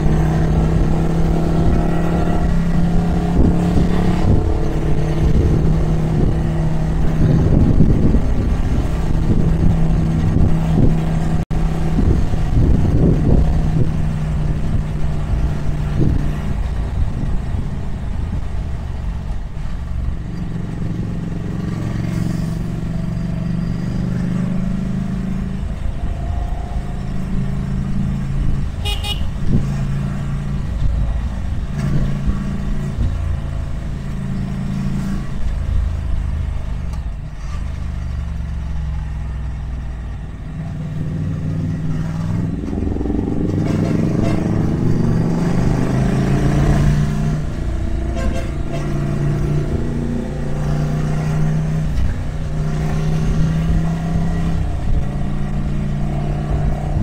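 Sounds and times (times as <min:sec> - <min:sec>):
horn toot: 0:28.8 - 0:29.4, 0:43.5 - 0:44.9, 0:48.0 - 0:49.2.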